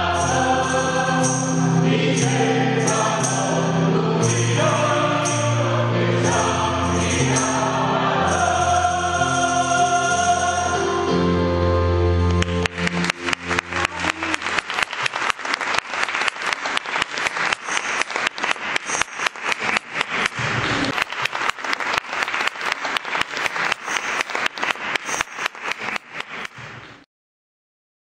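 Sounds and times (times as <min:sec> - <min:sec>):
choir singing final chord: 0:00.0 - 0:14.5
audience applauding: 0:12.3 - 0:26.9.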